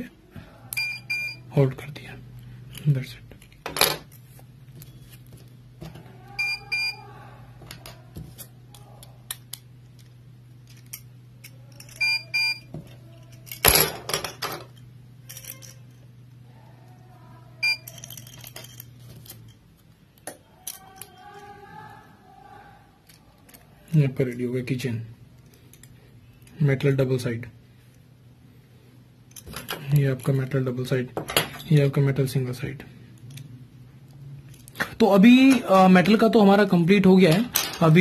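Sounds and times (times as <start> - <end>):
metal keychains clinking: 9.8 - 16.2, 17.6 - 19.8, 20.4 - 21.8.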